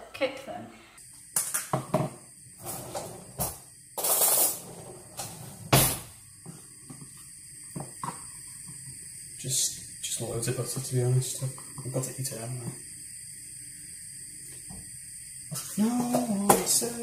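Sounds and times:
short hiss: 4.0 - 4.6.

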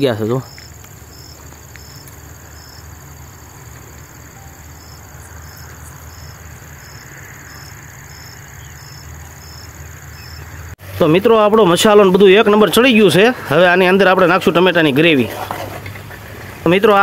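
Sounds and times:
insects trilling: 0.0 - 10.8
short high insect chirp: 0.3 - 10.7.

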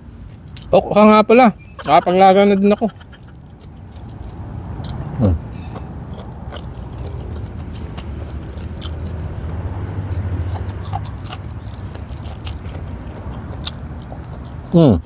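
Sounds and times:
mouth clicks: 2.7 - 9.2
close-up chewing and biting: 2.7 - 14.8.

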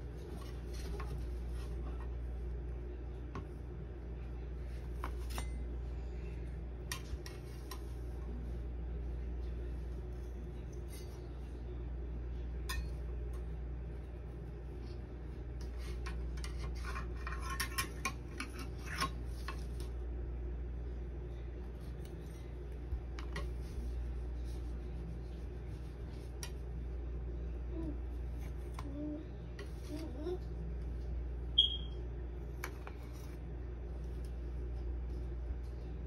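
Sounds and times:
steady low hum: 0.0 - 36.0
metal spatula scraping and clicking: 15.7 - 19.6.

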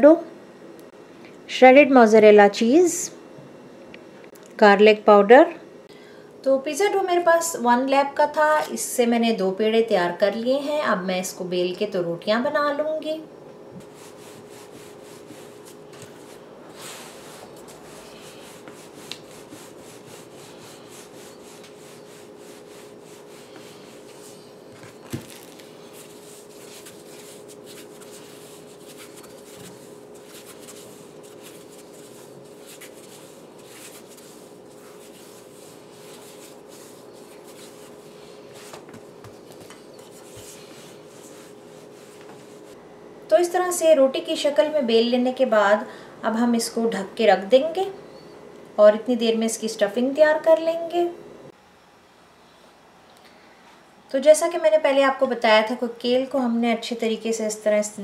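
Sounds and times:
steady low hum: 0.0 - 58.0
rolling pin rolling dough: 13.8 - 42.8.

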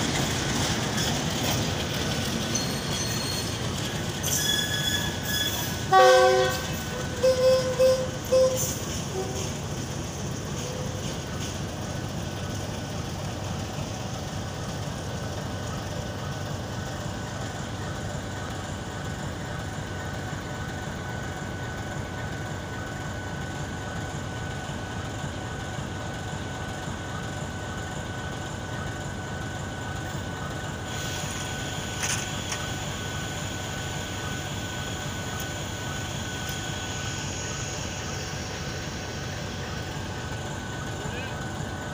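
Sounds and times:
diesel locomotive running: 0.0 - 41.9
thin steady whine: 29.0 - 41.9.

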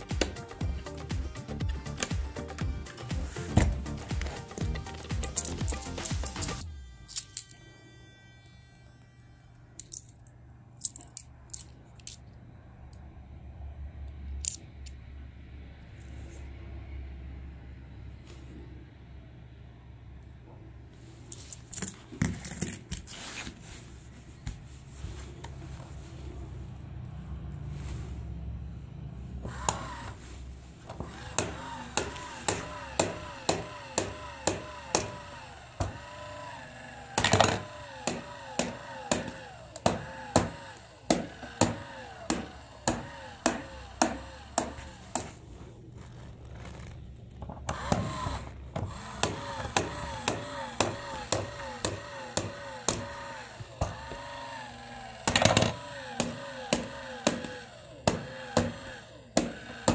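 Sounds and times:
toy mechanism clicking: 4.1 - 7.6, 9.8 - 12.3
small motor whine: 29.4 - 45.3, 47.6 - 59.9.

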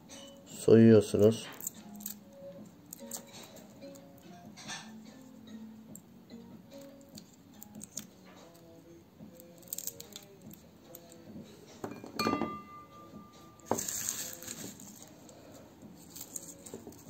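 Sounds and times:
glass dish clinking: 11.8 - 13.9.

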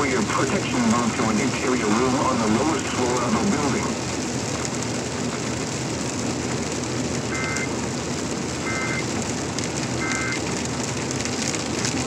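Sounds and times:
steady rain: 0.0 - 12.0
tyres on wet road: 0.0 - 12.0
short electronic beeps: 7.3 - 7.7, 8.6 - 9.0, 10.0 - 10.4.

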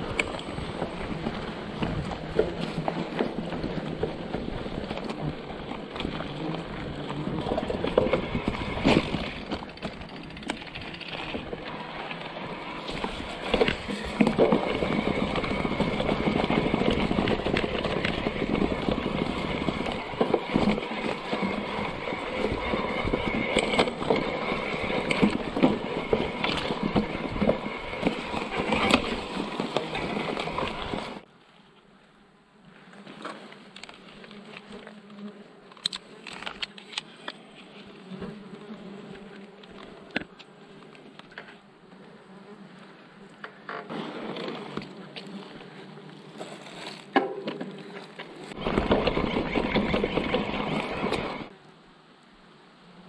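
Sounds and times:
bike rattling: 0.0 - 31.2, 46.4 - 51.5
bike tyres rumbling over sleepers: 0.0 - 31.3, 43.4 - 51.5.

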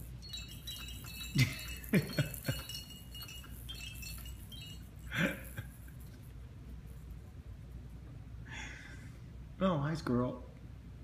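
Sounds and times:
toy chimes tinkling: 0.0 - 7.2.

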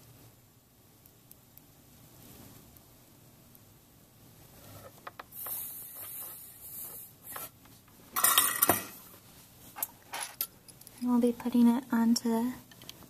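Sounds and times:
short hiss: 5.3 - 7.6
metal tools clinking and rustling: 8.2 - 9.0, 9.8 - 10.5.

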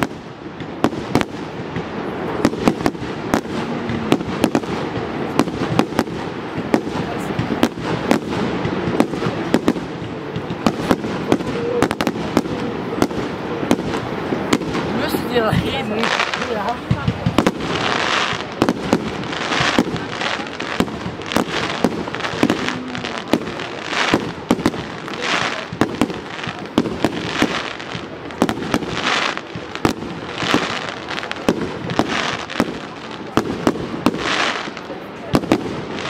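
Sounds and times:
fireworks bangs: 0.0 - 36.0
fireworks crackling and hissing: 0.0 - 36.0.

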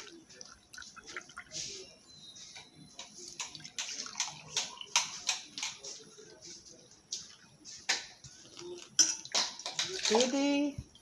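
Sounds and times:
water pouring into glasses: 0.0 - 1.9, 3.0 - 5.9
clinks and knocks of glass: 8.9 - 10.4.

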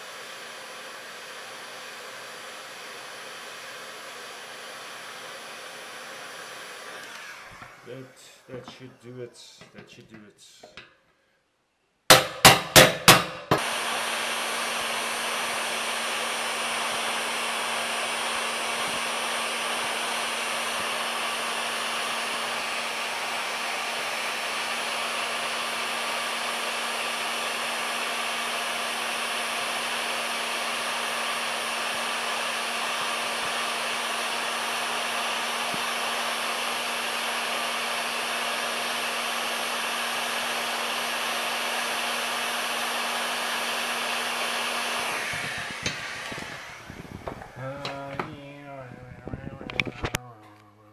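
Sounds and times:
heat gun blowing air: 0.0 - 9.0, 12.1 - 48.5.

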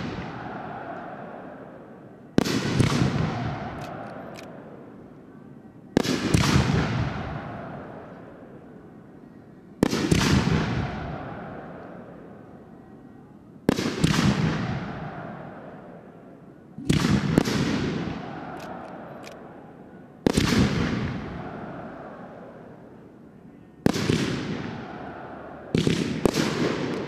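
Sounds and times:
long echo of bangs: 0.0 - 1.5, 2.4 - 3.8, 23.9 - 27.0.

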